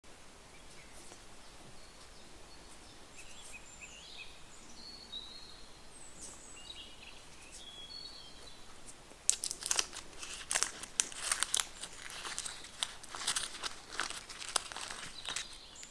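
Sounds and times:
faint bird chirps: 0:00.5 - 0:08.7
paper muffin case crinkling: 0:09.3 - 0:15.9.

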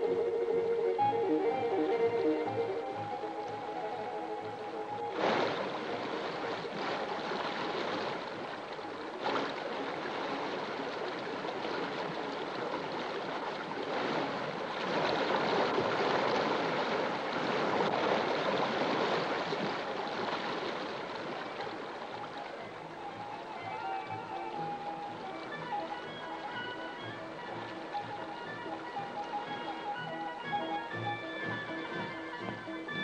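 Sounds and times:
running water rushing: 0:00.0 - 0:33.0.

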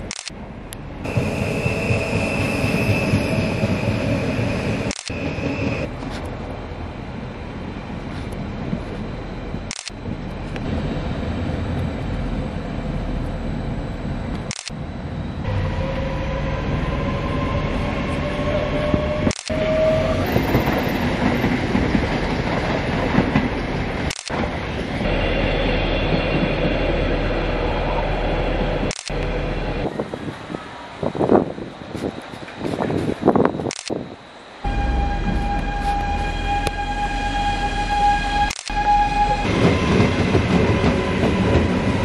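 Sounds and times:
train rail rumble: 0:00.0 - 0:42.0
train motor whine rising: 0:01.1 - 0:06.2, 0:09.5 - 0:21.5, 0:34.6 - 0:42.0.

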